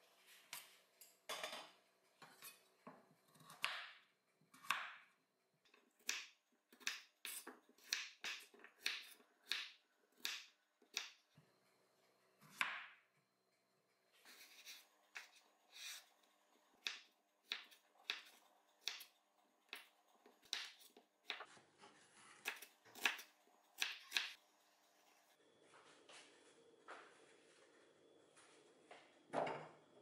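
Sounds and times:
knife chopping carrots on board: 0:04.6 - 0:05.1, 0:06.0 - 0:11.2, 0:16.8 - 0:19.1, 0:19.7 - 0:21.5, 0:22.4 - 0:24.4.

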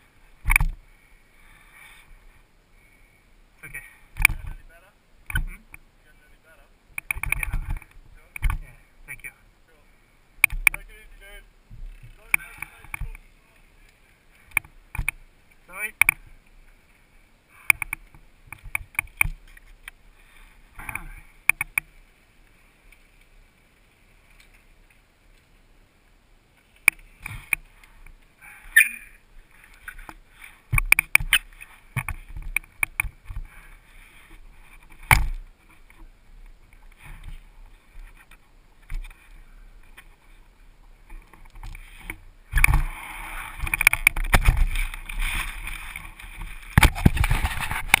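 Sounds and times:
hand scraping and rustling: 0:29.6 - 0:48.0.

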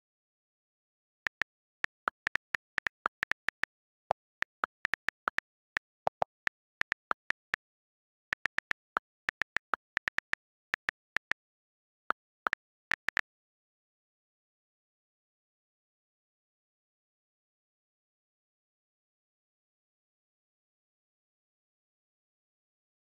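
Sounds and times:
on-screen keyboard clicks: 0:01.3 - 0:11.4, 0:12.1 - 0:13.2.

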